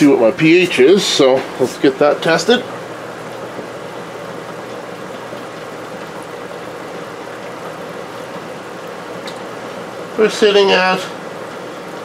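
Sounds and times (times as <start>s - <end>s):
air stone bubbling in water: 2.7s - 10.2s.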